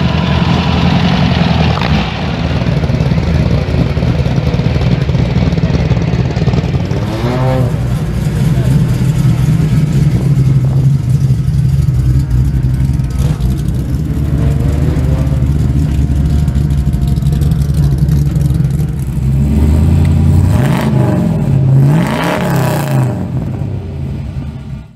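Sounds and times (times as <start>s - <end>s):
car engine idling and revving: 0.0s - 24.9s.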